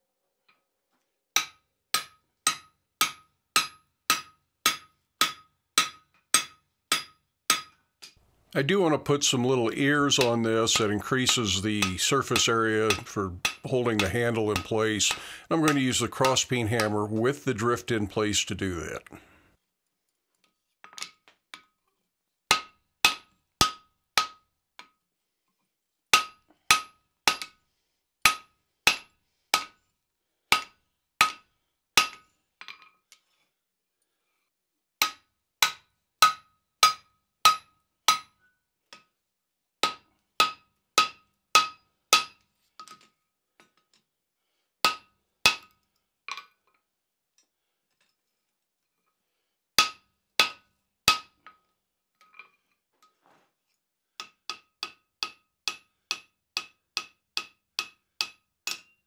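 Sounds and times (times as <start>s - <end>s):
hammer striking steel on anvil: 1.4s - 7.8s, 10.0s - 17.0s, 26.2s - 27.5s, 28.3s - 29.8s, 30.5s - 31.4s, 32.0s - 32.2s, 35.0s - 38.4s, 39.8s - 42.4s, 44.8s - 45.7s, 49.8s - 51.4s, 54.2s - 59.0s.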